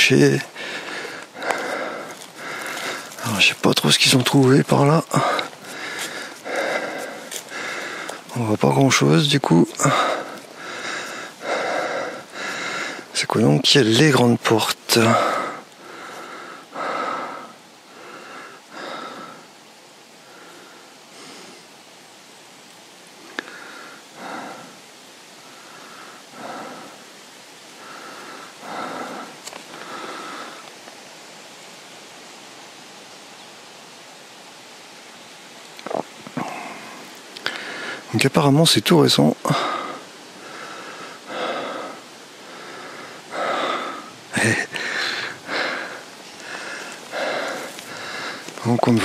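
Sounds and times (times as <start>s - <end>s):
person breathing heavily: 0.0s - 13.7s, 14.8s - 21.8s, 23.2s - 30.7s, 36.4s - 38.1s, 39.4s - 49.0s
steady hiss: 0.0s - 49.0s.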